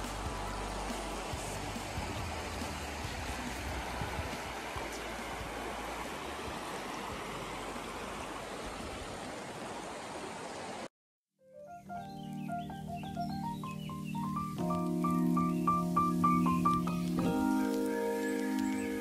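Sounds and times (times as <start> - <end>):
music: 0.0 - 5.9, 11.4 - 19.0
fast-flowing river rushing: 0.0 - 10.9.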